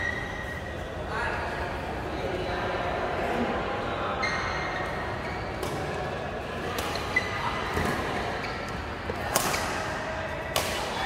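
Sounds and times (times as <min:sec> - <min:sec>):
racket hitting shuttlecock: 0:09.2 - 0:09.8, 0:10.5 - 0:11.0.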